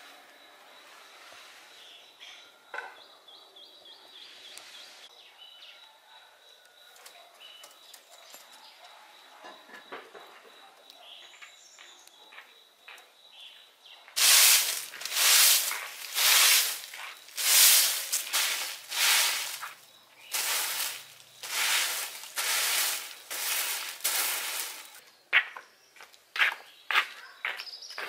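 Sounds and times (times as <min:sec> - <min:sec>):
broom sweeping dry leaves: 0:14.2 - 0:25.0.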